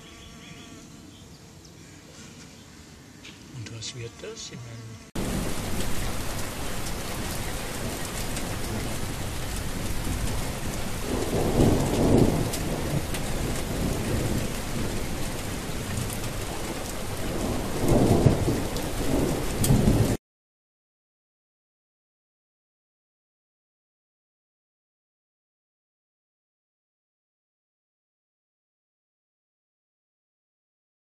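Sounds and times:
heavy rain: 0:05.1 - 0:20.2
low rumbles of thunder: 0:05.2 - 0:20.2.

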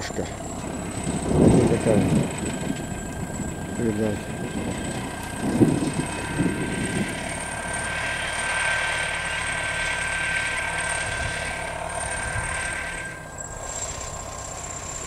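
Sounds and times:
bulldozer diesel engine: 0:00.0 - 0:15.0
track and machinery noise: 0:00.0 - 0:15.0.

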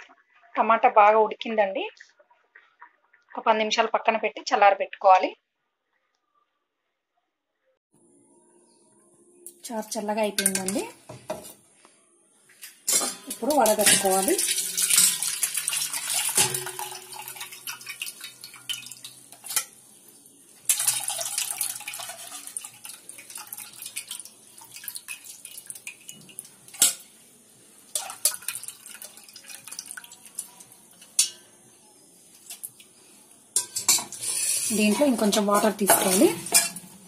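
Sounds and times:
liquid splashing and dripping: 0:12.6 - 0:19.7, 0:20.7 - 0:27.1, 0:27.9 - 0:31.3.

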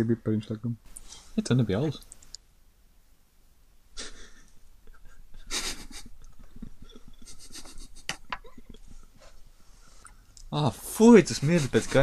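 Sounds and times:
suppressed breathy laughter: 0:04.0 - 0:09.4.

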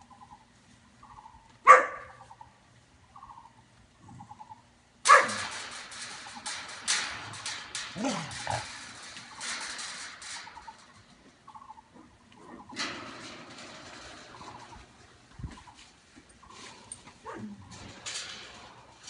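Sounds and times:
puppy barking: 0:01.6 - 0:02.2, 0:05.1 - 0:05.4.

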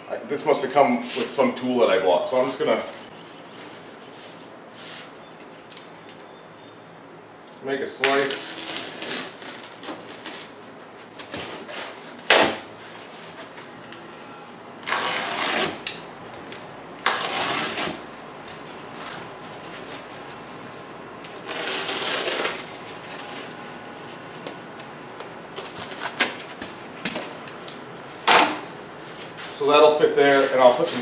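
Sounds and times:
knife cutting packing foam: 0:08.0 - 0:10.6, 0:14.8 - 0:16.0, 0:17.0 - 0:18.0, 0:21.2 - 0:22.7.

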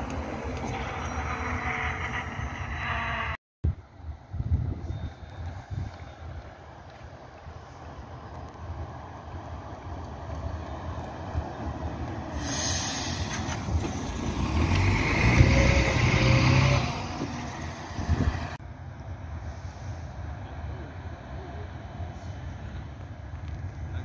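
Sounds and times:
bus driving past: 0:00.0 - 0:04.0, 0:05.6 - 0:23.9
bus hiss: 0:12.2 - 0:18.2, 0:19.3 - 0:20.4, 0:22.0 - 0:22.9.

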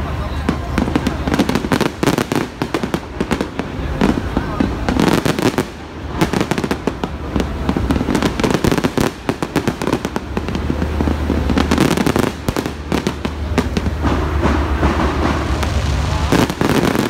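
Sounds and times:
fireworks bangs and crackles: 0:00.0 - 0:17.0
low rumble: 0:12.4 - 0:17.0.

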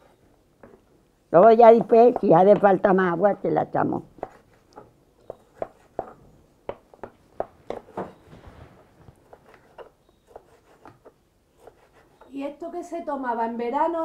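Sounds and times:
knife chopping on wooden board: 0:05.2 - 0:08.2.

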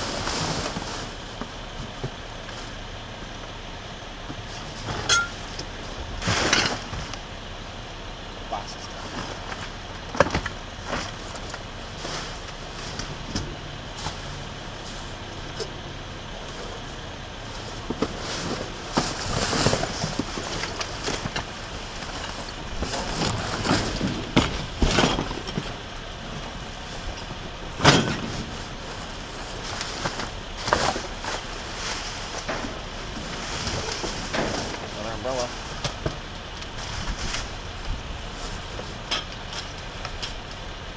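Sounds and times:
steady low rumble: 0:00.0 - 0:40.9
plastic and cardboard crinkling: 0:17.5 - 0:25.8, 0:28.2 - 0:40.6.

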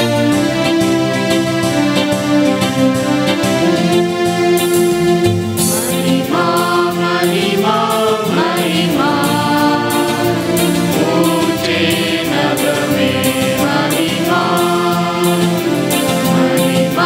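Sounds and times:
keyboard accompaniment: 0:00.0 - 0:17.0
choir singing a hymn: 0:04.6 - 0:17.0.

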